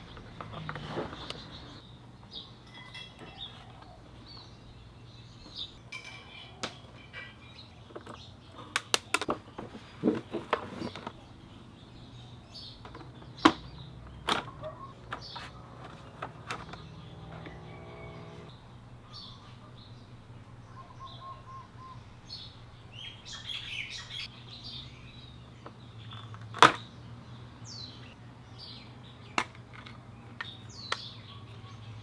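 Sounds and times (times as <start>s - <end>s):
birds chirping: 0.0s - 32.0s
low steady hum: 13.7s - 25.5s.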